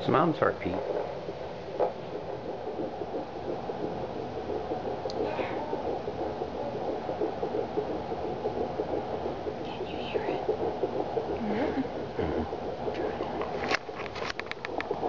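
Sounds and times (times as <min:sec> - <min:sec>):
doppler monitor whooshing pulse: 0:00.0 - 0:15.0.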